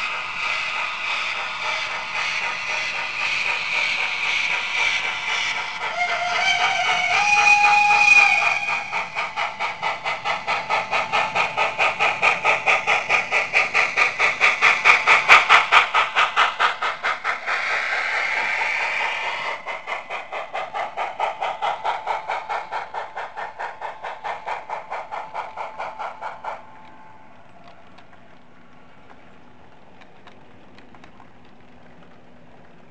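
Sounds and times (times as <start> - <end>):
steam locomotive chuffing: 0.0 - 32.9
model train whistle: 5.9 - 8.9.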